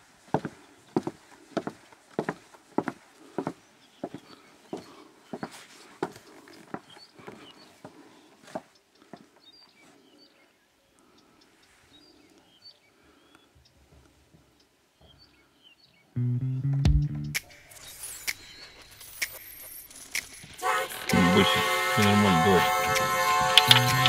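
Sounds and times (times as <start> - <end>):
footsteps: 0.3 - 9.2, 22.4 - 24.0
music: 16.2 - 17.5, 20.6 - 24.0
faint high bird chirps: 17.5 - 20.6.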